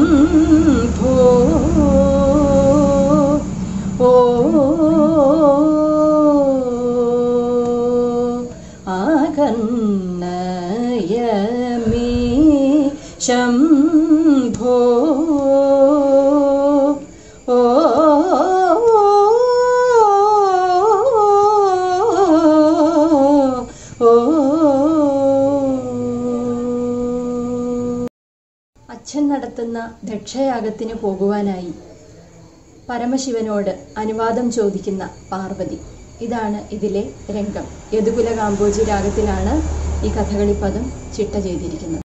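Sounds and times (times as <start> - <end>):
woman singing unaccompanied: 0.0 - 28.1, 28.9 - 31.8, 32.7 - 42.0
singer breathing: 3.6 - 4.0, 8.5 - 8.9, 13.0 - 13.2, 17.1 - 17.5, 23.7 - 24.0.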